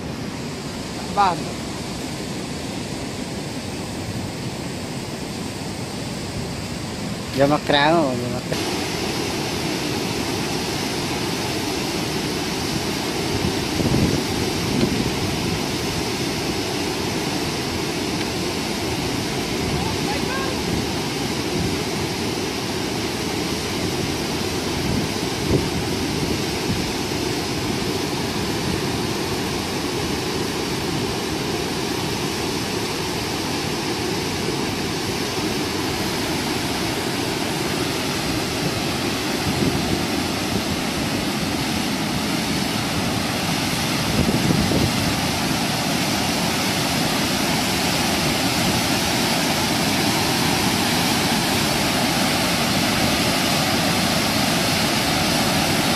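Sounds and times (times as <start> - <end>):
water rushing through spillway: 0.0 - 55.9.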